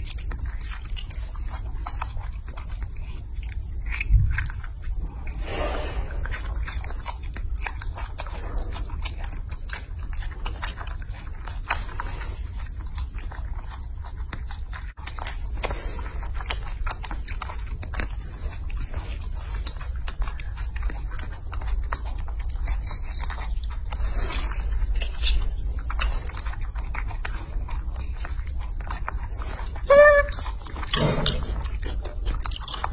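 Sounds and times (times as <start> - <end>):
monkey chewing crunchy food: 0.0 - 32.9
steady low rumble: 1.6 - 13.9.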